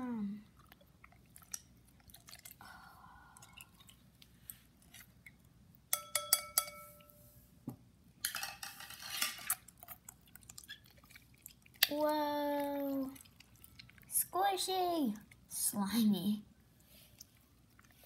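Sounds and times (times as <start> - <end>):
slime squelch: 0.0 - 5.6, 9.4 - 18.0
metal spoon clinking glass bowl: 5.9 - 7.2.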